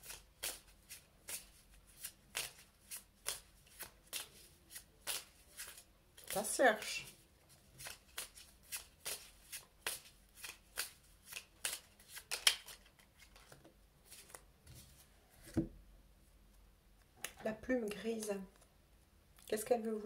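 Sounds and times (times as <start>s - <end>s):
cards being shuffled: 0.0s - 7.0s, 7.6s - 15.7s.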